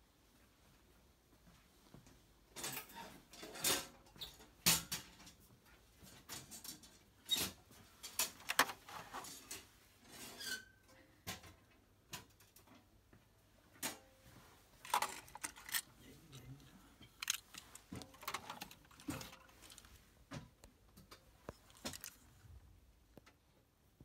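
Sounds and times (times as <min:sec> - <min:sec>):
objects shifted on wooden shelves: 0:06.0 - 0:10.6, 0:13.8 - 0:22.6.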